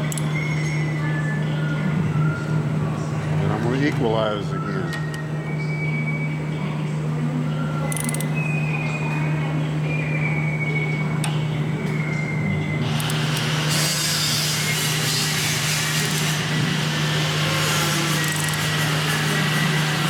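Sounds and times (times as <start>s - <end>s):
low machine hum: 0.0s - 20.0s
bandsaw wheel whirring: 12.8s - 20.0s.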